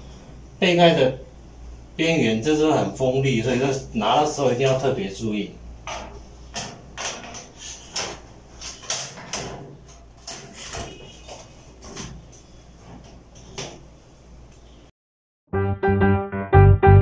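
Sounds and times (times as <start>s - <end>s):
sheet metal panel clattering: 5.9s - 13.1s.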